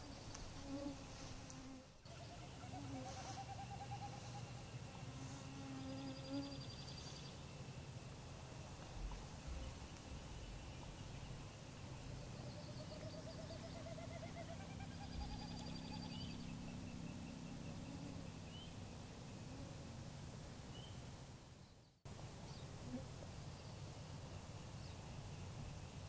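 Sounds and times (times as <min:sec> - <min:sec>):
songbirds singing: 0:02.0 - 0:19.6.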